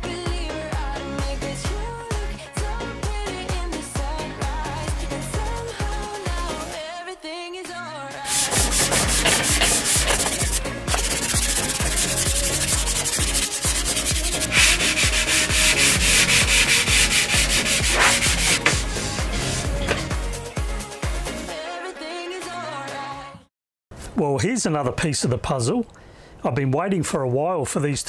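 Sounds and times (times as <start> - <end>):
sandpaper rasping on wood: 8.3 - 20.1.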